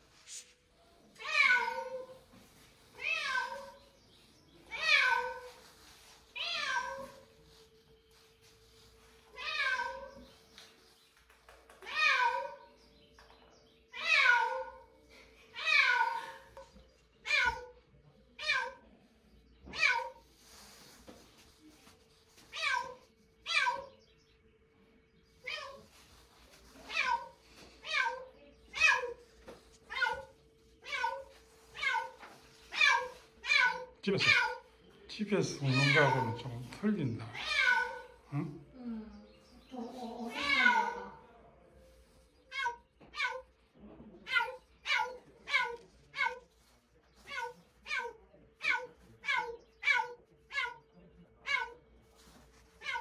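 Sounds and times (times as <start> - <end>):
cat meowing: 1.2 - 2.2, 4.7 - 5.6, 6.4 - 7.3, 9.4 - 10.2, 29.9 - 34.7, 35.7 - 36.4, 37.3 - 38.2, 40.2 - 41.2, 52.8 - 53.0.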